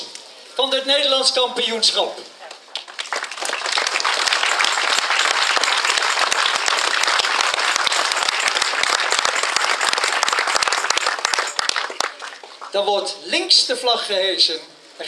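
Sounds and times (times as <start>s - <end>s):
crowd applauding: 2.7s - 12.8s.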